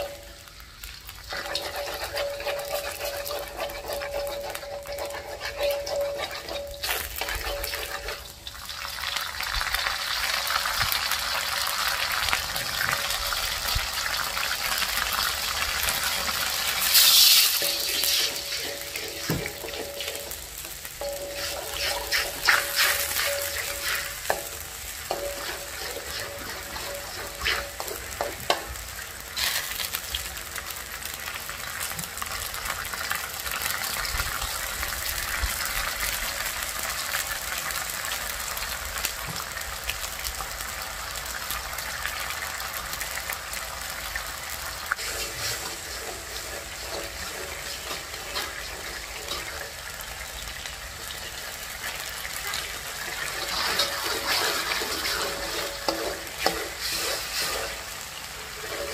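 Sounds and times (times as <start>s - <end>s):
metal ladle scraping wok: 0.0s - 8.8s, 15.5s - 30.0s, 45.0s - 50.4s, 52.9s - 58.9s
sauce sizzling in a wok: 0.0s - 58.9s.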